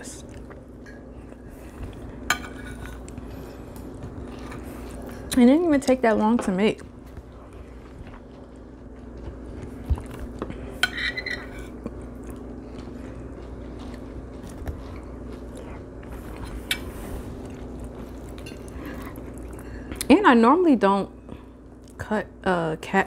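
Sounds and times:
steady low hum: 0:00.0 - 0:23.0
person chewing food: 0:00.1 - 0:05.3, 0:06.8 - 0:20.1.

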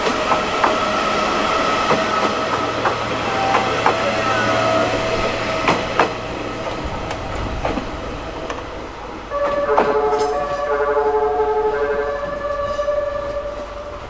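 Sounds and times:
train wheels knocking over rail joints: 0:00.0 - 0:10.6
train horn melody: 0:00.0 - 0:14.0.

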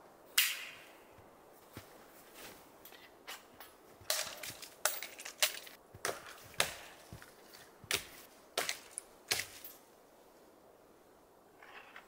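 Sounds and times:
blade chopping wood: 0:04.1 - 0:07.3, 0:07.9 - 0:09.7.

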